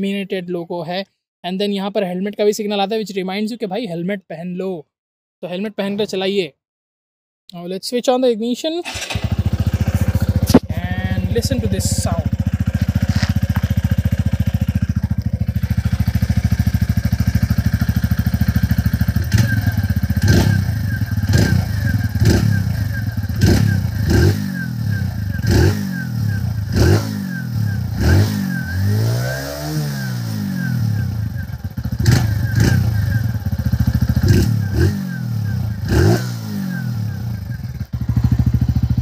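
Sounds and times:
motorcycle engine idling and revving: 0:08.9 - 0:39.0.

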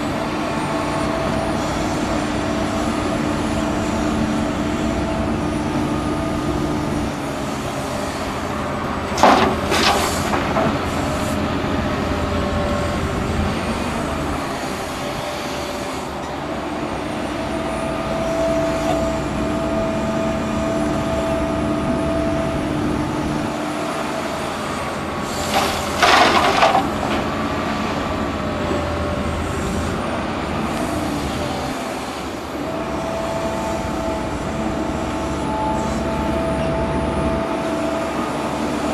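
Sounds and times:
excavator engine and hydraulics: 0:00.0 - 0:38.9
soil and rocks crashing into truck: 0:09.2 - 0:10.8, 0:25.5 - 0:27.3.

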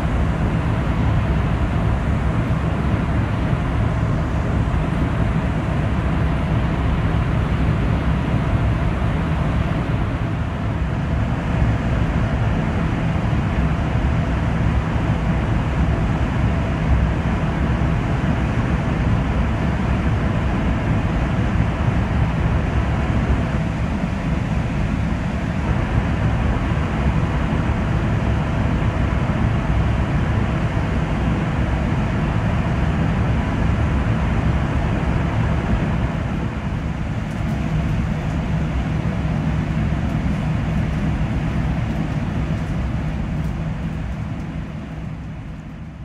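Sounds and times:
low steady hum: 0:00.0 - 0:46.0
train running noise inside cabin: 0:00.0 - 0:46.0.

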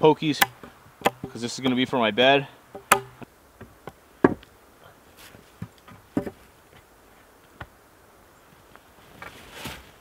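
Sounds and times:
wooden poles knocking and snapping: 0:00.3 - 0:01.4, 0:02.7 - 0:04.5, 0:05.6 - 0:06.4.

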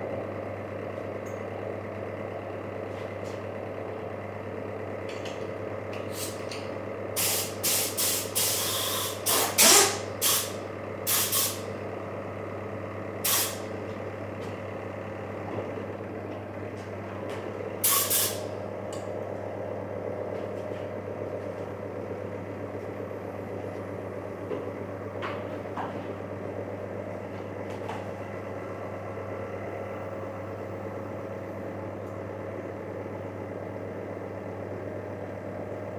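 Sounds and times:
steady motor hum: 0:00.0 - 0:35.9
spray gun air hisses: 0:07.2 - 0:11.6, 0:13.2 - 0:13.6, 0:17.8 - 0:18.4.

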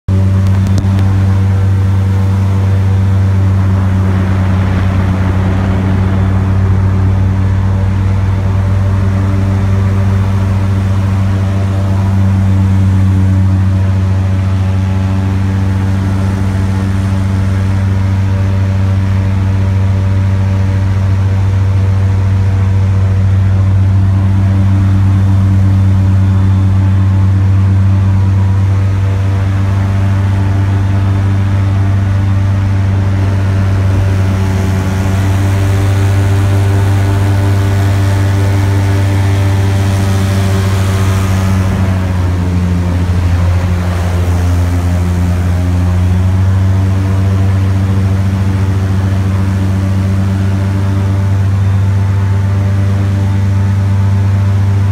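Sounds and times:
airboat engine drone: 0:00.0 - 0:54.9.

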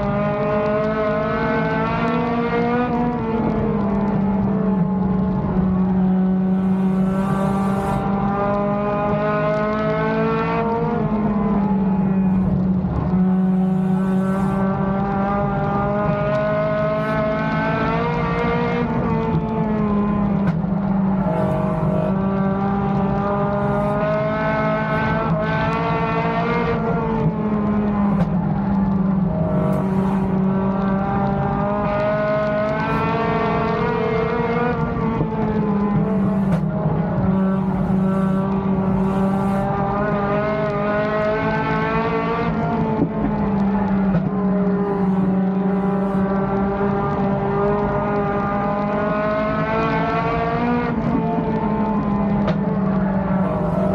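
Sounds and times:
race car engine from cockpit: 0:00.0 - 0:53.9.

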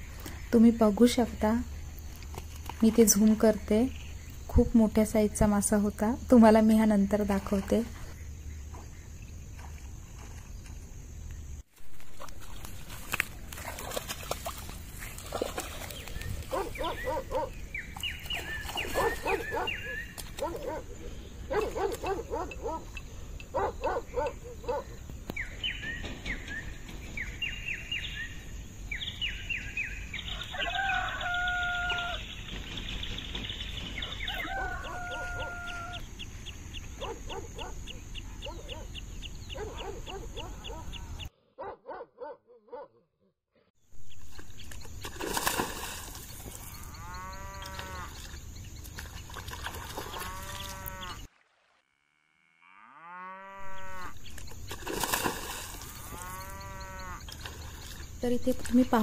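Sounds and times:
birds chirping: 0:00.0 - 0:42.8, 0:44.0 - 0:51.3, 0:53.5 - 0:59.0
rooster crowing: 0:30.3 - 0:32.3, 0:34.0 - 0:36.0.

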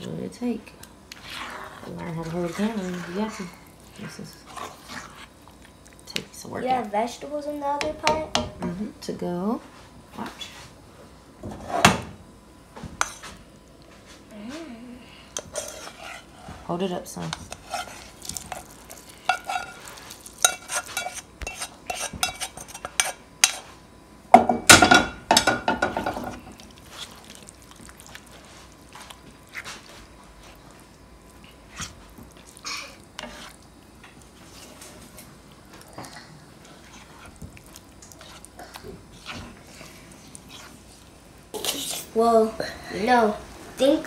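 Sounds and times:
spoon scraping a pan: 0:01.1 - 0:05.4, 0:13.0 - 0:13.4, 0:15.4 - 0:23.8, 0:33.2 - 0:35.3, 0:38.0 - 0:38.5, 0:39.1 - 0:41.0.

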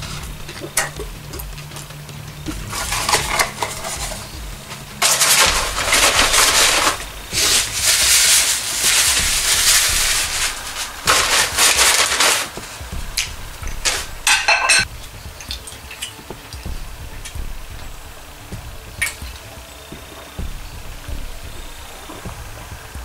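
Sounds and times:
paper packaging crinkling: 0:02.6 - 0:14.8.

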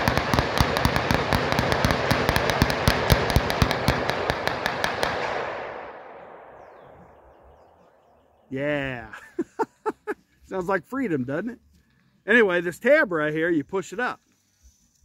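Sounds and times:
rapid handgun fire: 0:00.0 - 0:07.6.

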